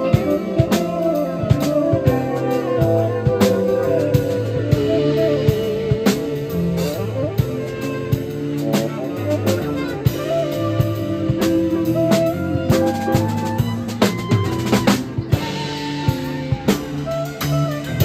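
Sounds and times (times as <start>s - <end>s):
bass guitar: 0.0s - 18.0s
drum kit: 0.0s - 18.0s
electric guitar lead: 0.0s - 18.0s.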